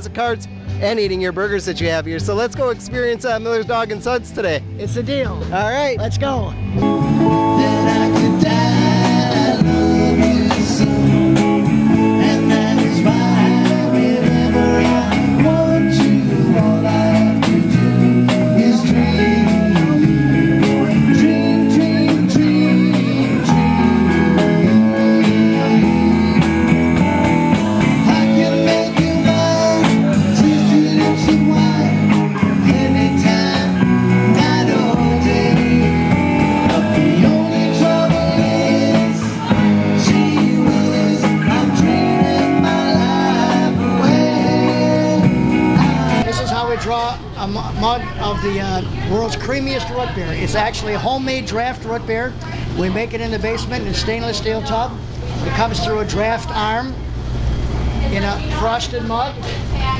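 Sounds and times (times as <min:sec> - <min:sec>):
rock band playing: 0:00.0 - 0:46.3
guitar: 0:00.0 - 0:59.9
person singing: 0:06.8 - 0:46.3.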